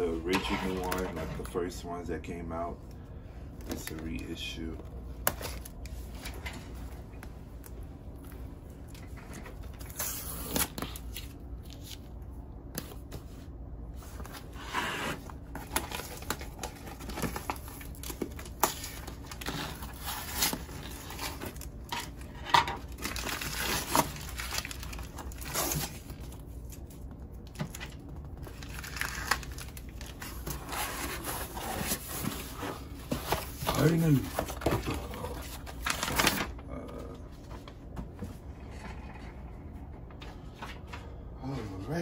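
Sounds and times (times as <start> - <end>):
cardboard tearing and crinkling: 9.0 - 12.0, 14.4 - 36.6.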